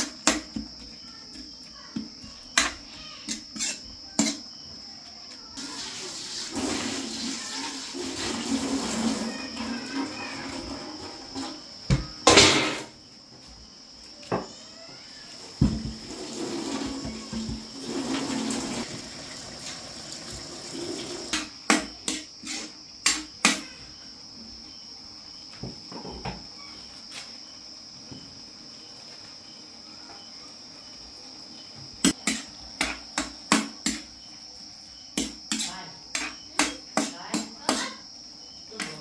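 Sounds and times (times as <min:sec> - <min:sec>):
high insect trill: 0:00.0 - 0:39.0.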